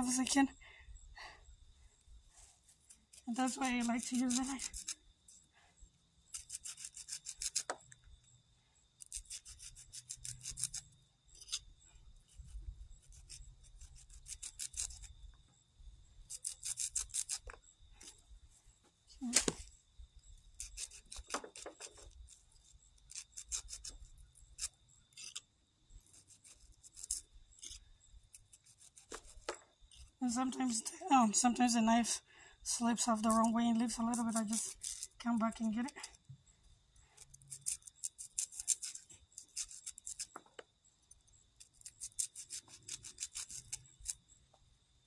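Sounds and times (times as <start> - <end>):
knife scraping corn kernels: 2.4 - 5.5, 6.2 - 7.9, 9.0 - 15.2, 16.2 - 18.2, 20.5 - 30.9, 33.0 - 36.1, 37.0 - 44.2.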